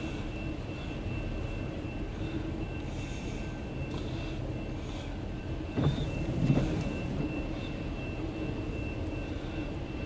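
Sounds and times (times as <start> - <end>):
freight train rolling: 5.3 - 10.0
train car clanks: 5.7 - 7.4.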